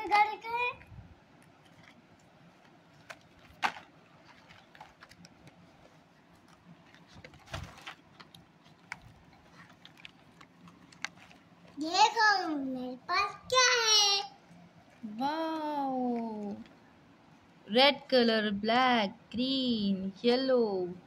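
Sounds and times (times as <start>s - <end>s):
plastic packaging clicks and crinkles: 1.3s - 11.8s.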